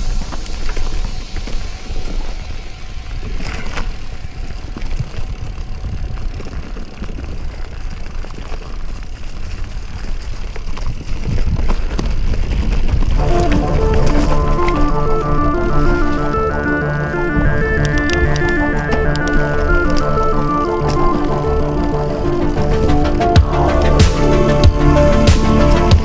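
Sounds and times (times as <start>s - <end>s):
bike rattling over bumps: 0.0s - 26.0s
wind and tyre rumble: 0.0s - 26.0s
music: 13.2s - 26.0s.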